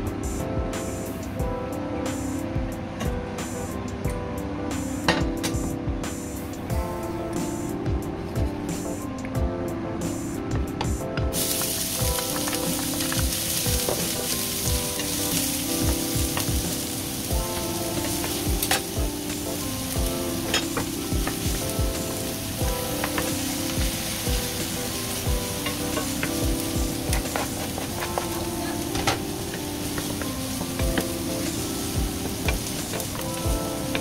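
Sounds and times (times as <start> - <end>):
onions sizzling in oil: 11.3 - 34.0.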